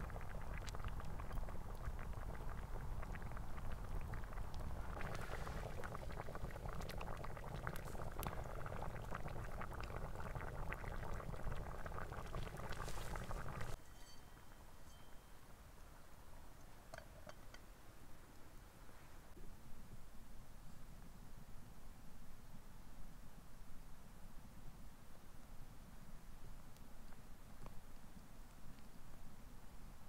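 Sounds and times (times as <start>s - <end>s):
soup bubbling and popping: 0.0s - 13.8s
wood campfire crackling: 0.0s - 13.8s.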